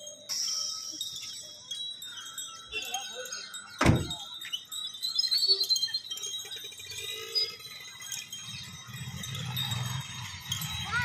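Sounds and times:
metal bells jingling: 0.0s - 11.0s.

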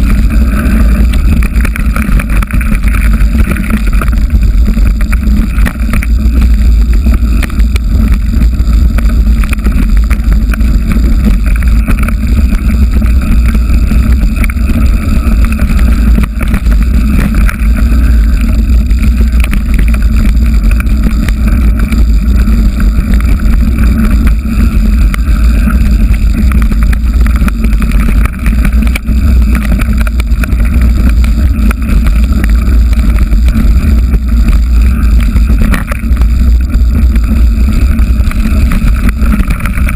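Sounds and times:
mountain bike rattling over rocks: 0.0s - 39.9s
wind buffeting microphone: 0.0s - 39.9s.

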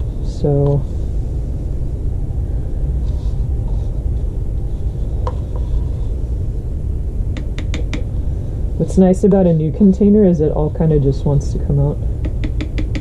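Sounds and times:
low background rumble: 0.0s - 13.0s
brush tapping plastic container: 7.4s - 8.1s, 12.2s - 13.0s.

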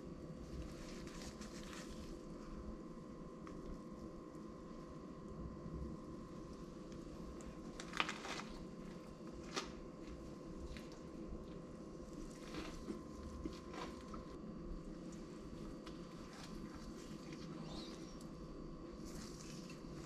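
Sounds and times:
faint steady hum: 0.0s - 20.0s
tortilla wrap crunching: 7.3s - 11.2s, 12.0s - 14.4s.

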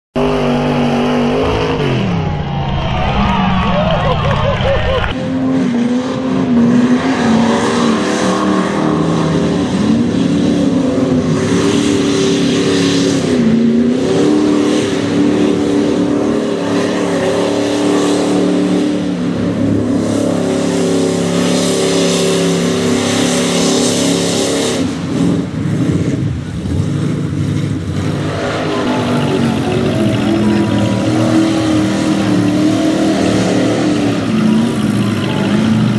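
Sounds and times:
truck engines revving: 0.1s - 35.9s.

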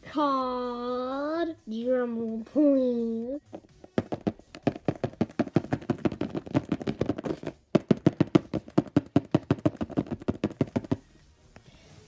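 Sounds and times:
hands tapping on a tabletop: 3.5s - 11.0s.

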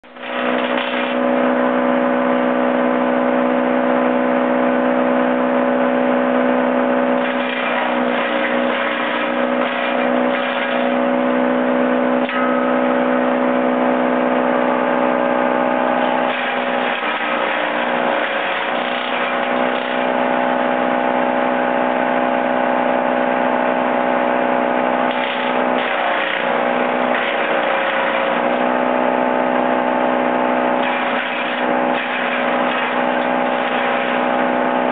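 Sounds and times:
chipper shredder humming: 0.0s - 34.9s
branches crunching in chipper: 15.4s - 21.0s, 30.8s - 34.9s.

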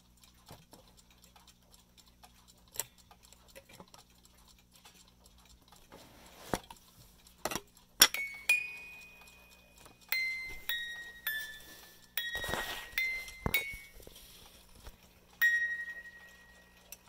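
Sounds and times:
music box metal notes: 7.4s - 17.0s.

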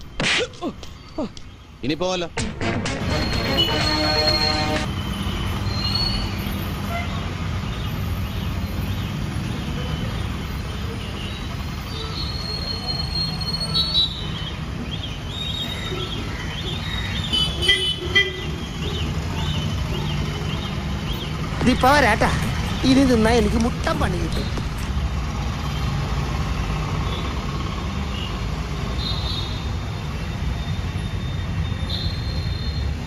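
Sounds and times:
traffic rumble: 0.0s - 33.0s
vehicle horn toots: 3.0s - 4.9s, 17.4s - 18.6s.

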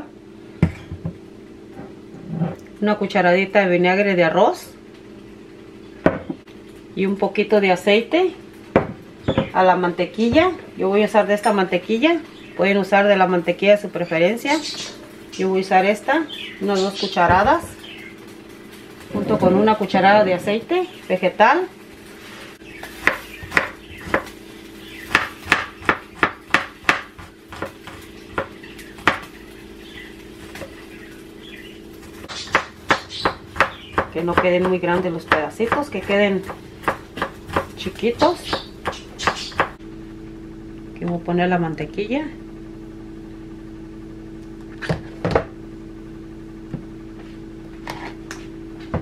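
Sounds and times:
steady low hum: 0.0s - 49.0s
knife chopping on wooden board: 22.9s - 24.3s, 25.1s - 29.3s, 32.3s - 39.8s.

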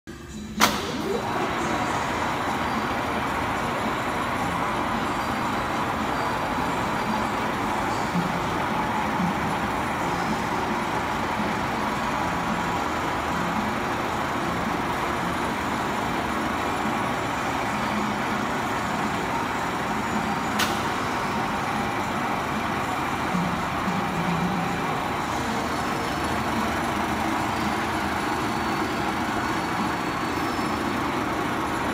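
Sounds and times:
lathe mechanical whir: 0.2s - 31.9s
sharp click: 20.6s - 20.9s.

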